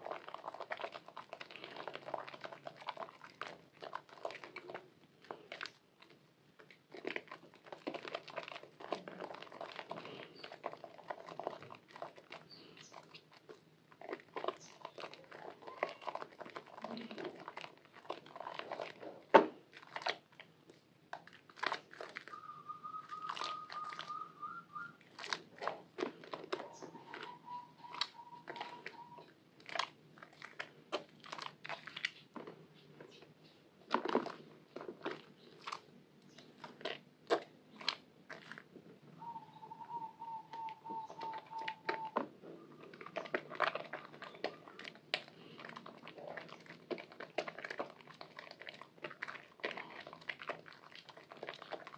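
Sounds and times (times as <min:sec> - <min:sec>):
soap cracking: 0:00.0 - 0:51.9
wet soap squelching in hands: 0:00.0 - 0:51.9
faint whistle-like tone: 0:22.3 - 0:25.0, 0:26.7 - 0:29.3, 0:39.2 - 0:42.2.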